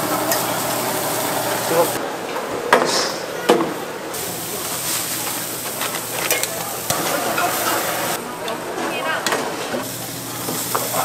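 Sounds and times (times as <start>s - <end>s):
skewers sizzling on a grill: 0.0s - 2.0s, 4.2s - 8.2s, 9.8s - 11.0s.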